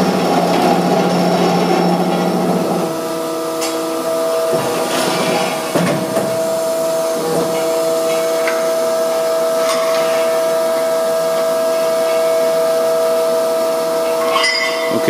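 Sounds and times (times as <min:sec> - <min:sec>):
metal saw whining: 0:14.0 - 0:15.0
metal tube clinking: 0:14.2 - 0:15.0.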